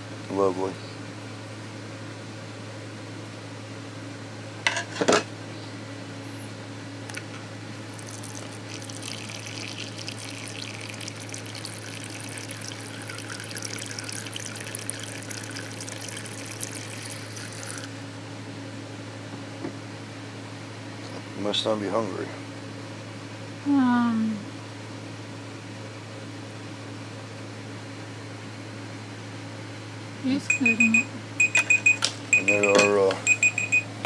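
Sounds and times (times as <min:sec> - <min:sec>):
water jet splashing on leaves: 0:07.9 - 0:18.0.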